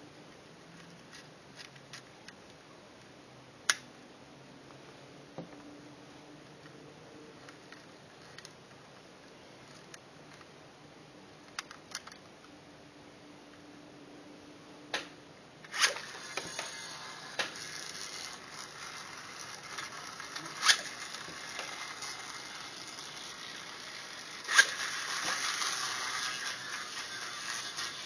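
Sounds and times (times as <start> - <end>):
whirring hiss of spinning rotors: 15.8 - 28.0.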